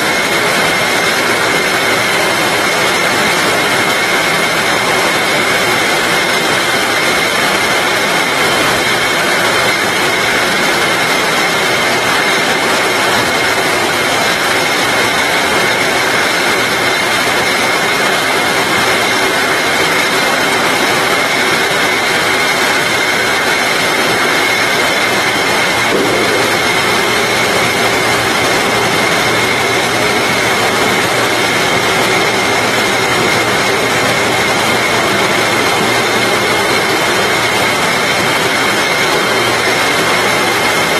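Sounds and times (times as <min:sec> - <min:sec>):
constant high whine: 0:00.0 - 0:40.9
labeling machine mechanical din: 0:00.0 - 0:40.9
low hum: 0:24.0 - 0:37.7.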